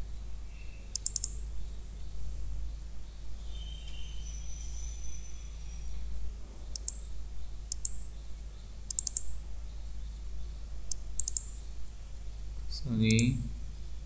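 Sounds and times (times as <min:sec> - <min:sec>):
low electrical hum: 0:00.0 - 0:14.0
mouse button clicks: 0:01.0 - 0:01.4, 0:06.7 - 0:07.0, 0:08.9 - 0:09.3, 0:11.2 - 0:11.5.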